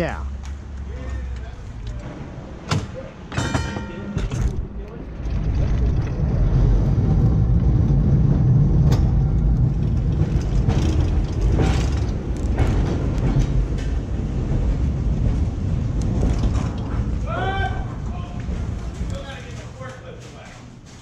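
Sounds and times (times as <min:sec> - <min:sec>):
streetcar wheels rumbling on rails: 0:00.0 - 0:21.0
sharp clicks and knocks: 0:08.8 - 0:17.2.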